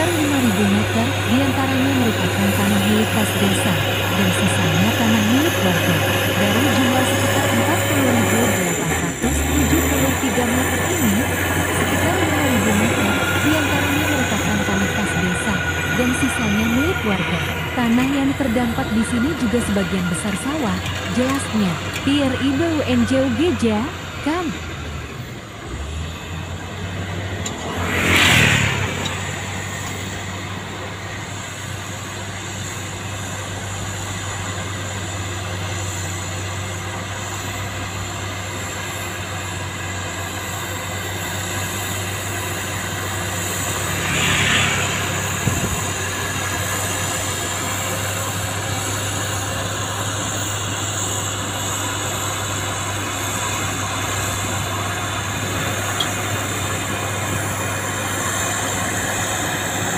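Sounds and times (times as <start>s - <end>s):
diesel engines running: 0.0s - 59.9s
rush of noise: 23.9s - 33.8s, 42.0s - 59.9s.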